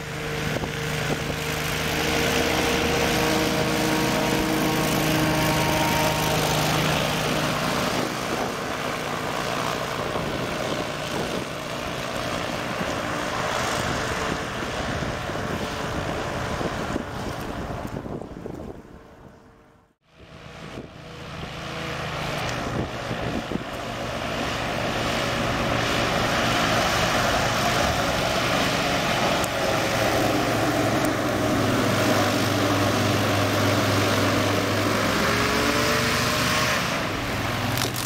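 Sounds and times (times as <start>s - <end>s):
hovercraft engine and propeller drone: 0.0s - 38.0s.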